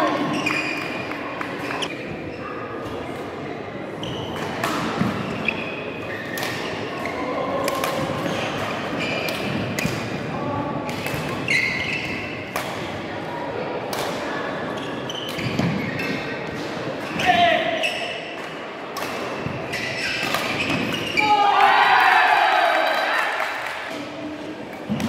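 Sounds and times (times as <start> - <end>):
shoe squeaks on court floor: 0.0 - 1.9, 4.0 - 4.5, 5.2 - 6.4, 8.2 - 9.6, 11.4 - 12.4, 14.8 - 16.4, 17.1 - 18.3, 19.6 - 21.3
murmur of the hall: 0.0 - 25.0
racket hitting shuttlecock: 6.3 - 6.8, 10.9 - 13.0, 18.5 - 21.1.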